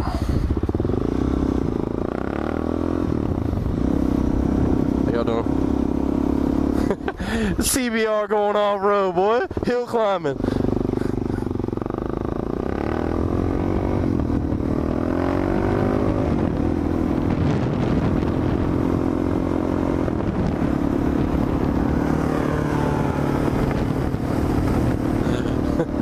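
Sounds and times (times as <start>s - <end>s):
motorcycle engine accelerating: 0.0s - 26.0s
wind noise on microphone: 3.0s - 5.1s, 13.2s - 25.8s.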